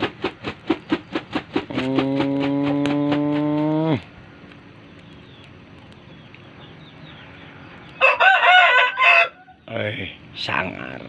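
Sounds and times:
rooster crowing: 0:08.0 - 0:09.6.

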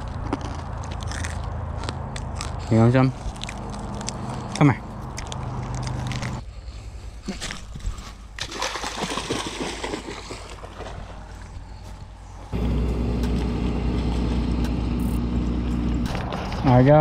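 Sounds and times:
dog splashing in water: 0:08.4 - 0:11.5
low motor hum: 0:10.6 - 0:17.0.

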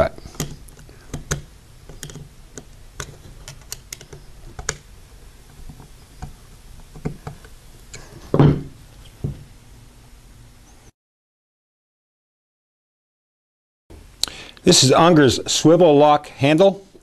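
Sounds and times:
louder knock: 0:08.4 - 0:08.7.

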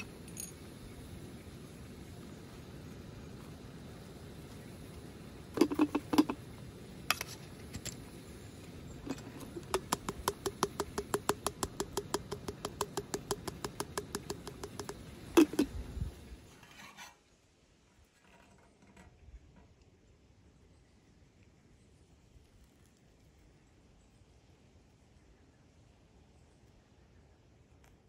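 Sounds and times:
taps on metal cup: 0:05.6 - 0:06.4, 0:09.1 - 0:15.7.

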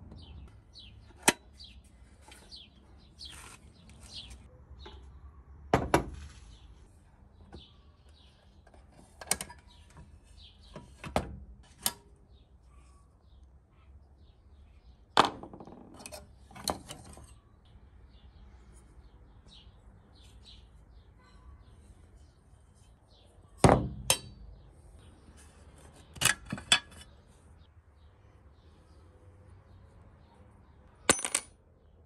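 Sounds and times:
metal stove parts clinking: 0:10.6 - 0:12.1, 0:15.9 - 0:17.4, 0:23.7 - 0:24.5, 0:26.1 - 0:27.1.

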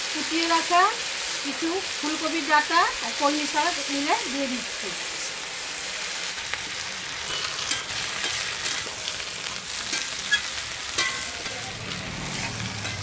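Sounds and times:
vegetables sizzling in oil: 0:00.0 - 0:13.0
metal spatula scraping a pan: 0:07.2 - 0:11.6, 0:12.2 - 0:13.0.

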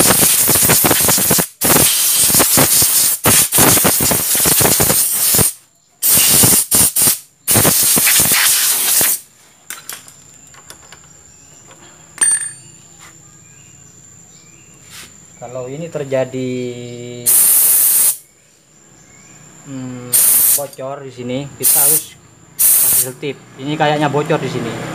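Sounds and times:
water spray hissing: 0:00.0 - 0:09.2, 0:17.3 - 0:18.2, 0:20.1 - 0:20.8, 0:21.6 - 0:23.2.

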